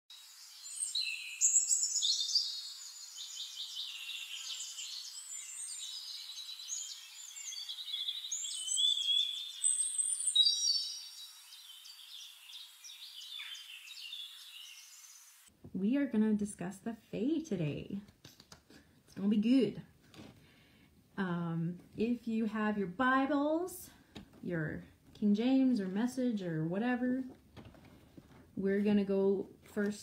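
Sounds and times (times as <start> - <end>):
birds singing: 0.3 - 15.4.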